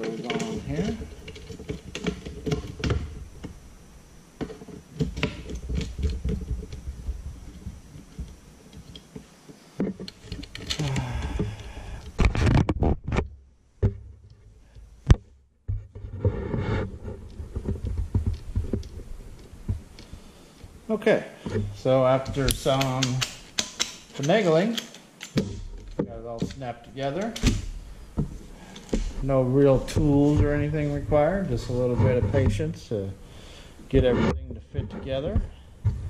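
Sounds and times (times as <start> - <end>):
plastic and metal parts clicking: 9.8 - 12.8, 21.4 - 29.2.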